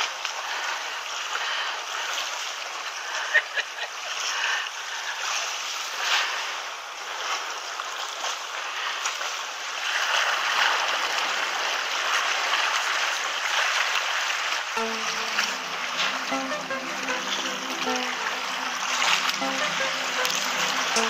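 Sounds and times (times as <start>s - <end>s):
sea surf washing over rocks: 5.4s - 21.0s.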